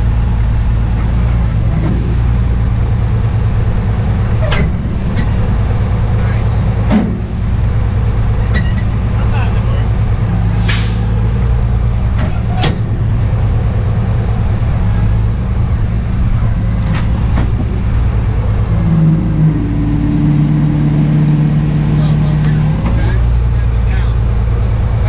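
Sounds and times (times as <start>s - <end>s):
truck engine running: 0.0s - 25.0s
brief hiss: 10.6s - 11.2s.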